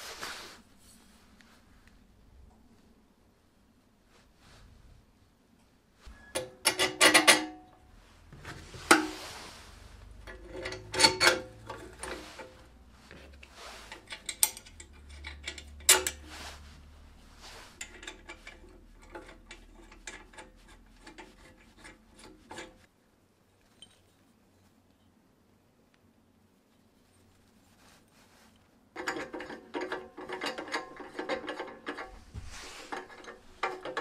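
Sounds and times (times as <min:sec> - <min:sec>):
metal scrape: 0:06.0 - 0:22.9, 0:27.8 - 0:34.0
steel parts clinking and knocking: 0:06.2 - 0:07.8, 0:10.2 - 0:16.3, 0:17.8 - 0:22.8, 0:29.0 - 0:34.0.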